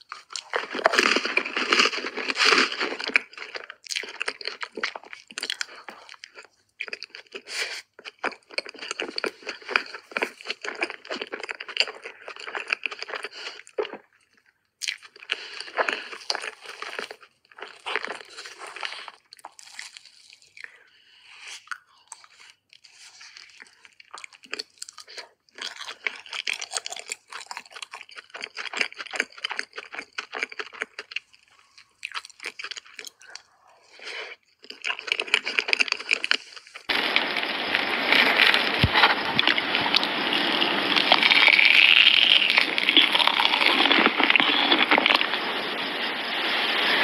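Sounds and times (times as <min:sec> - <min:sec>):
wet chewing: 0:00.0 - 0:20.8, 0:21.6 - 0:46.9
steady rushing noise: 0:36.9 - 0:47.0.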